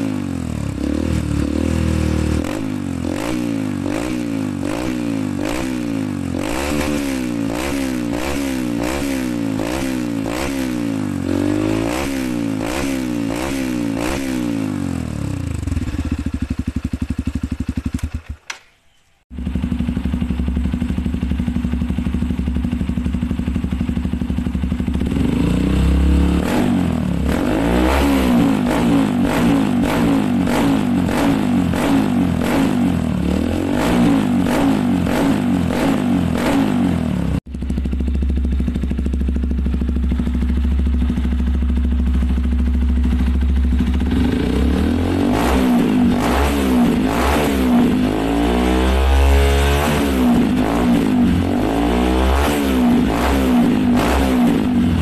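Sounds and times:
dirt bike engine revving: 0:00.0 - 0:18.5, 0:19.3 - 0:55.0
motorcycle idling: 0:14.6 - 0:18.6, 0:19.3 - 0:27.4, 0:34.9 - 0:46.2, 0:52.9 - 0:55.0.

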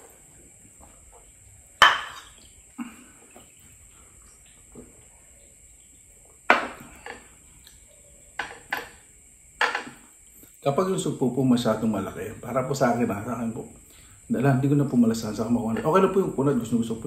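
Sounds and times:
tableware clinking: 0:01.8 - 0:02.4, 0:08.4 - 0:10.0.

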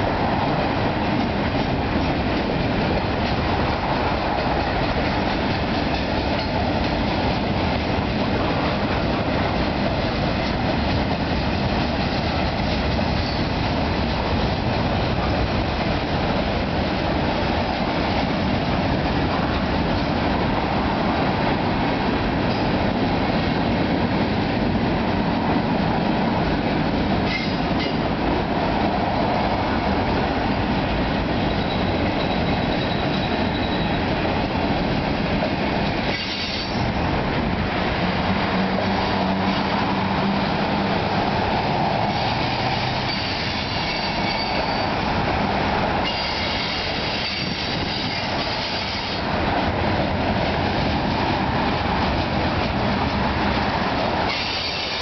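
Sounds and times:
train wheels rumbling on rails: 0:00.0 - 0:55.0
faint high wheel squeal: 0:31.4 - 0:34.0, 0:42.8 - 0:45.0, 0:46.0 - 0:49.2, 0:54.3 - 0:55.0.

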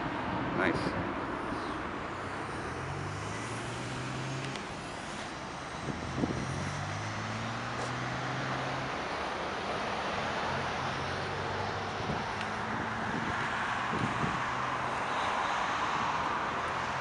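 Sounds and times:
traffic rushing hum: 0:00.0 - 0:17.0
low engine drone: 0:01.0 - 0:13.3.

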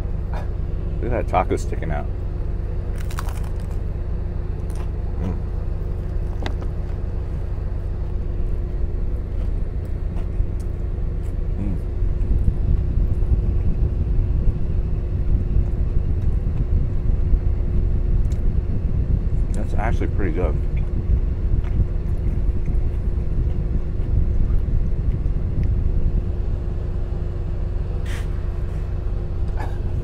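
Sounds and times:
faint steady hum: 0:00.0 - 0:30.0
low engine drone: 0:00.0 - 0:30.0
crunching crispy taco shell: 0:02.8 - 0:03.9.

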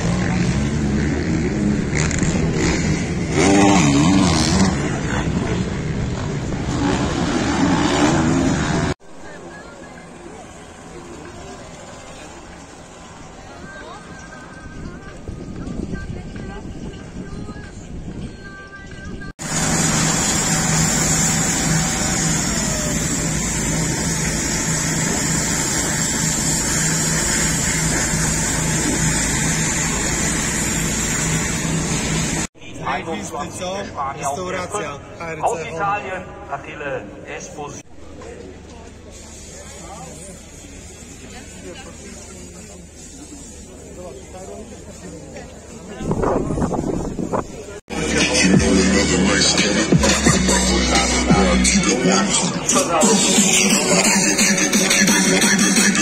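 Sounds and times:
motocross bike engines revving: 0:00.0 - 0:09.0, 0:19.4 - 0:32.5, 0:45.8 - 0:56.0
pressure washer running: 0:19.4 - 0:32.5.

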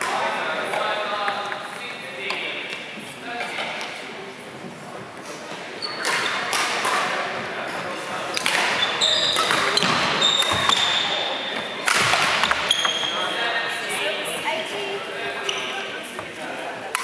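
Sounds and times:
background chatter: 0:00.0 - 0:17.0
rackets hitting shuttlecocks: 0:06.0 - 0:07.3, 0:08.4 - 0:10.9, 0:11.8 - 0:12.7
shoes squeaking on wooden floor: 0:07.6 - 0:11.7, 0:12.4 - 0:13.4.

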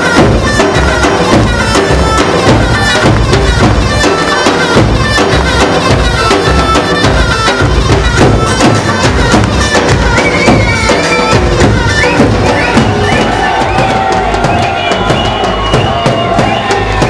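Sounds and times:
drum beating quick rhythm: 0:00.0 - 0:17.0
folk dance music: 0:00.0 - 0:17.0
wind instrument melody: 0:00.0 - 0:17.0.

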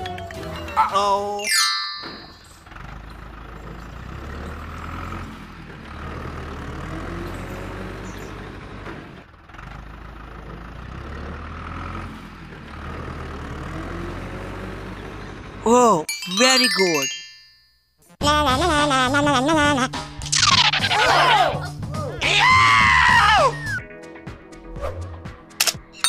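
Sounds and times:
heavy vehicle engine rumbling: 0:01.8 - 0:15.7.

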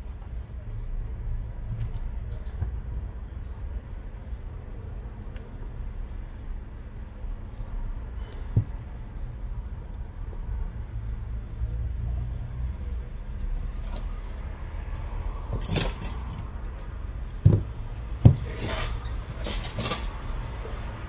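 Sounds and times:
tissue wiping glass: 0:00.0 - 0:15.0.

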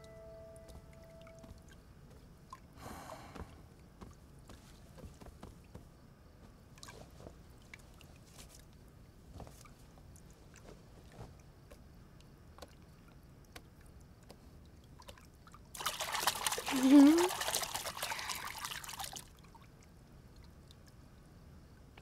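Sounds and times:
bathwater sloshing and dripping: 0:06.7 - 0:21.0.

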